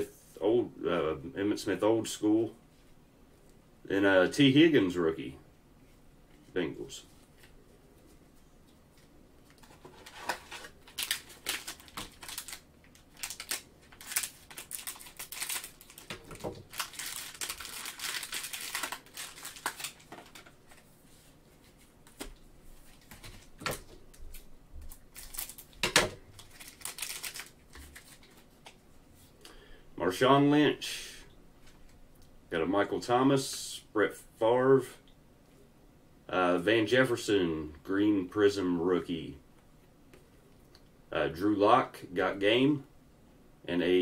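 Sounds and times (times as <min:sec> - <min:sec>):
plastic wrapper crinkling and tearing: 0:09.5 - 0:20.8, 0:22.9 - 0:28.8.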